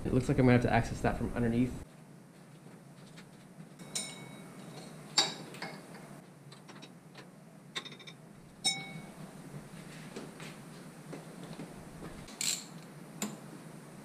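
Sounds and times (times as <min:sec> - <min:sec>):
faint steady hum: 0:00.0 - 0:14.0
metal tools clinking: 0:03.8 - 0:06.0, 0:12.3 - 0:12.8.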